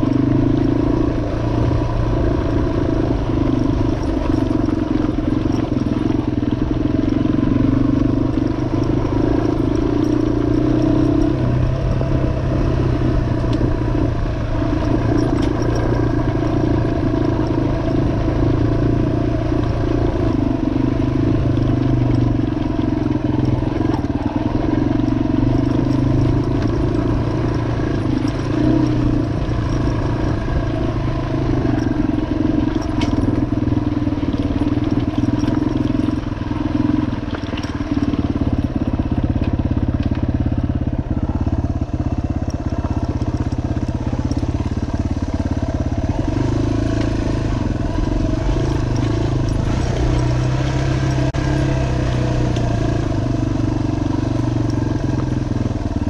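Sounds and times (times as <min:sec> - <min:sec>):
motorcycle engine riding: 0:00.0 - 0:56.0.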